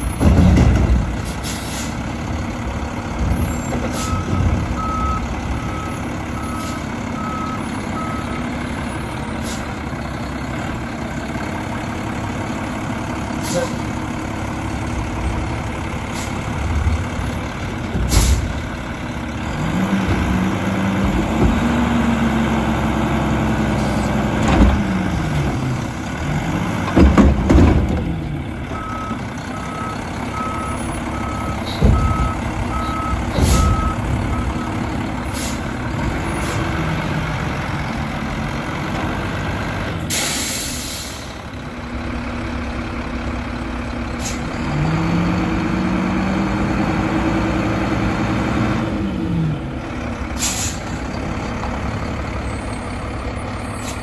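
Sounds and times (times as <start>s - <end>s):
truck engine revving: 0.0s - 54.0s
air brake hissing: 1.2s - 2.0s, 18.1s - 18.5s, 35.3s - 35.7s, 40.1s - 41.4s, 44.2s - 44.5s, 50.4s - 51.0s
reverse alarm beeping: 4.0s - 8.4s, 28.8s - 34.8s.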